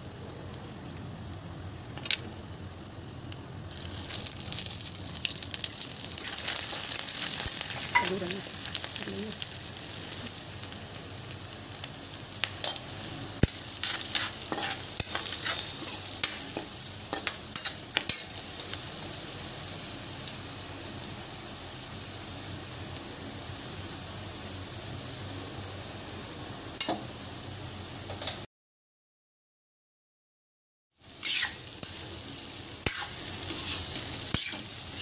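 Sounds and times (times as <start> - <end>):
spices sizzling in hot oil: 0.0 - 28.5, 30.9 - 35.0
metal spoons scraping a pan: 13.4 - 18.4, 31.2 - 32.0, 32.8 - 35.0.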